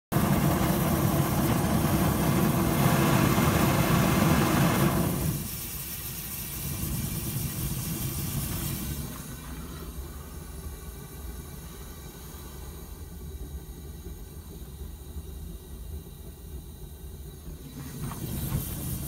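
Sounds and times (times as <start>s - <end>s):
gas burner flame rushing: 0.1s - 19.0s.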